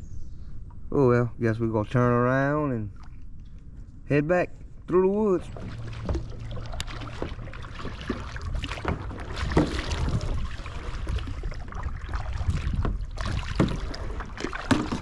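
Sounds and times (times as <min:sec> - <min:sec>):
paddles splashing in water: 0:05.3 - 0:15.0
wind rumble on microphone: 0:05.4 - 0:15.0.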